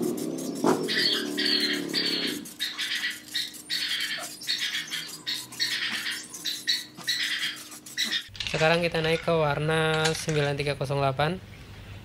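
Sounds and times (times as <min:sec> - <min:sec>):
spray can hissing in bursts: 0:00.0 - 0:08.3.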